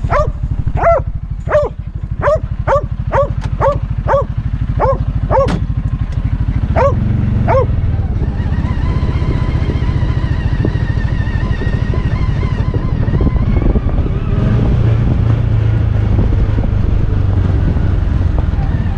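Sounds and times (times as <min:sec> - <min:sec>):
dog barking: 0:00.0 - 0:05.6, 0:06.7 - 0:07.8
engine rumbling: 0:00.0 - 0:18.9.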